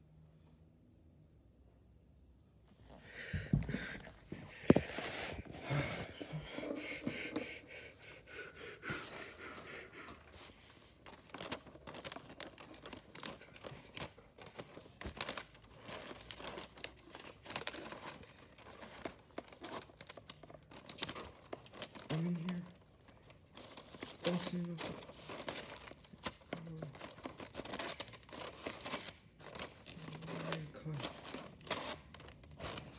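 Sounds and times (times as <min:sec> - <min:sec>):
wrapping paper rustling: 0:03.1 - 0:32.9.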